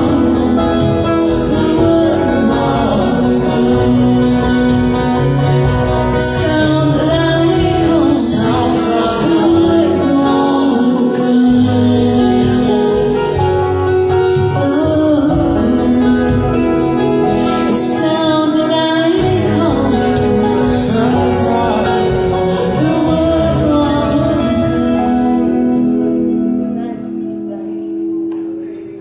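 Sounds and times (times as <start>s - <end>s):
voices singing with instruments: 0.0s - 26.8s.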